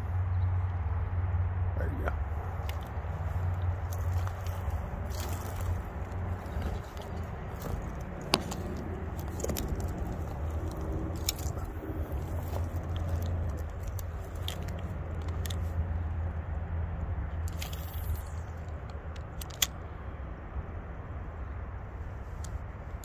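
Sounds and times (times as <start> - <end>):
fishing reel clicks and rustles: 2.6 - 15.8, 17.4 - 19.8.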